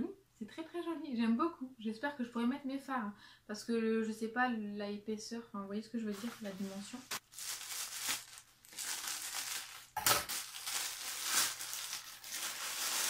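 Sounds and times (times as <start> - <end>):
plastic mailer bag crinkling: 6.1 - 13.0.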